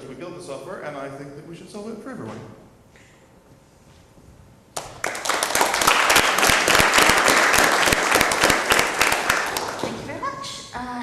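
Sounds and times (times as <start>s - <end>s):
small audience applauding: 4.8s - 10.1s.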